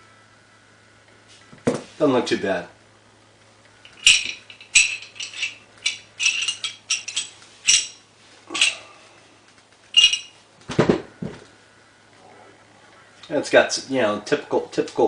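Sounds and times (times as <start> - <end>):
pistol parts clicking and scraping: 3.8 - 8.0.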